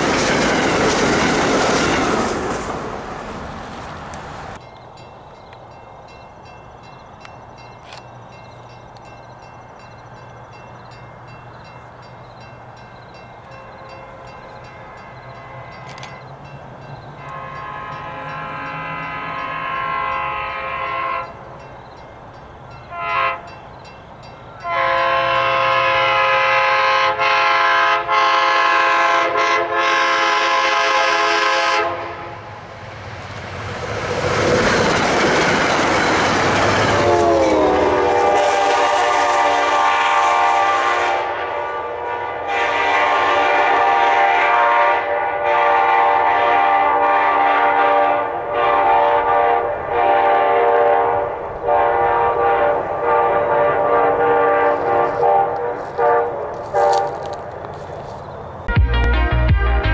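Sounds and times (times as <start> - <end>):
train passing with wheel noise: 0.0 - 58.8
train horn blasts: 13.5 - 16.2, 17.2 - 21.5, 22.8 - 23.6, 24.5 - 32.5, 36.8 - 57.4.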